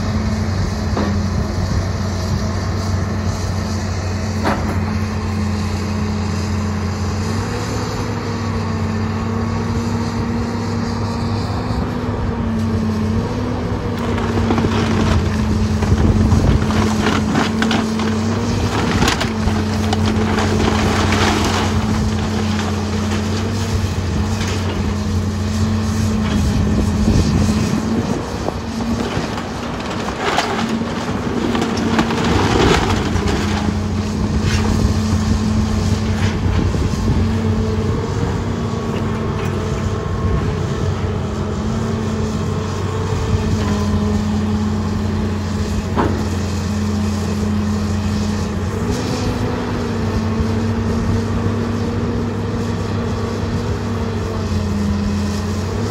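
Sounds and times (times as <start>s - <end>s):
excavator diesel engine running: 0.0s - 55.9s
wooden framing cracking and clattering: 14.0s - 25.0s, 28.8s - 34.8s.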